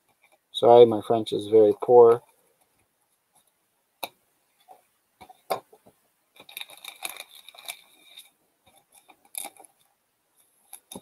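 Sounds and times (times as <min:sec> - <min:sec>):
foil wrappers crinkling: 0:06.4 - 0:09.8.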